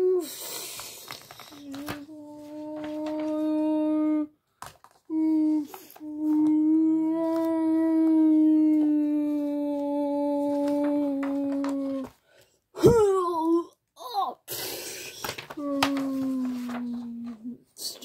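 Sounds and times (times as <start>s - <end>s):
child humming a long note: 0.0s - 0.4s, 1.6s - 4.3s, 5.1s - 12.1s, 15.6s - 17.6s
child breathing: 0.1s - 1.7s, 14.4s - 15.5s.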